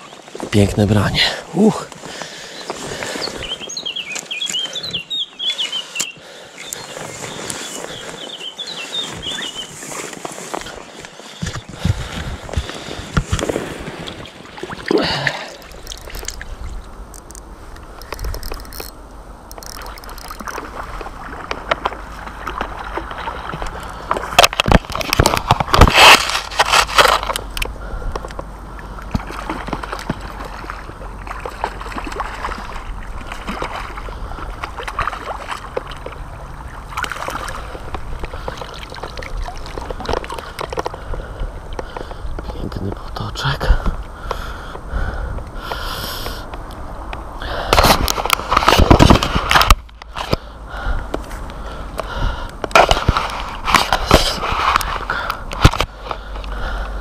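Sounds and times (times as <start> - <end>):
river water sloshing and gurgling: 1.3 - 42.4.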